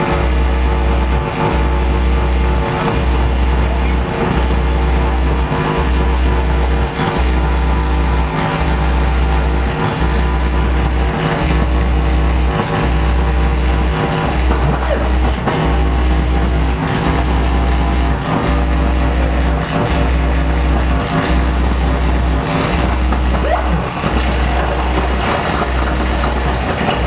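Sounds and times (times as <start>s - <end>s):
noisy synthesizer wash: 0.0s - 27.0s
pulsing deep bass tone: 0.0s - 27.0s
sustained organ chords: 0.0s - 27.0s.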